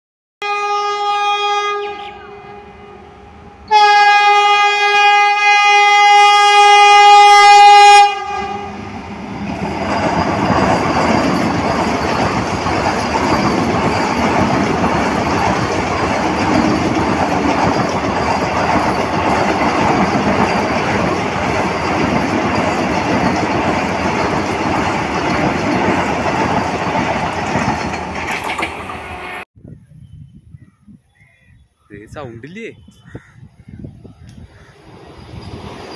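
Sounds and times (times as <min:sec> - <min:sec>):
train horn blasts: 0:00.4 - 0:08.9
train wheels rumbling on rails: 0:06.2 - 0:29.4, 0:33.8 - 0:35.9.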